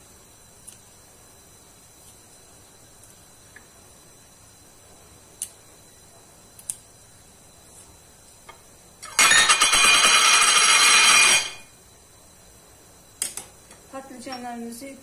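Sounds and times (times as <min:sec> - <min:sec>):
loud harsh scraping: 0:09.2 - 0:11.6.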